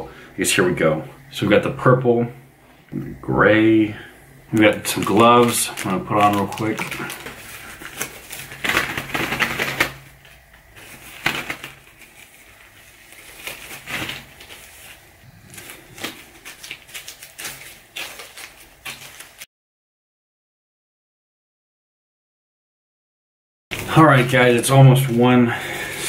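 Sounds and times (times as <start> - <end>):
rubber gloves rustling and snapping: 4.5 - 19.5.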